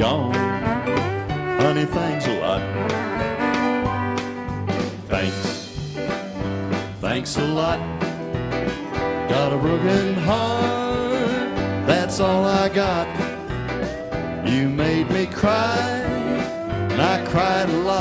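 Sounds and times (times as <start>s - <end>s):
fiddle melody: 0.0s - 5.1s
western swing band playing: 0.0s - 18.0s.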